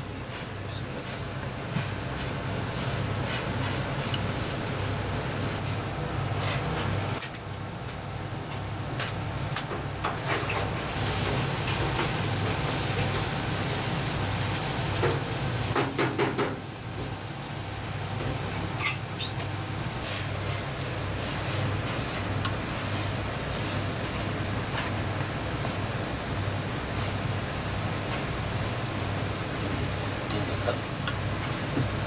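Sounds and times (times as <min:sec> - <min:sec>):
water boiling and bubbling: 0:10.7 - 0:32.0.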